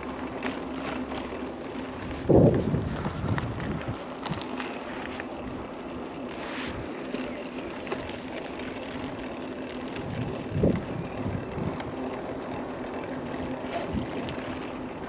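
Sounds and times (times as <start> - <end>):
tyre noise on road: 0.0 - 15.0
wind on microphone: 2.1 - 4.0, 10.0 - 11.8.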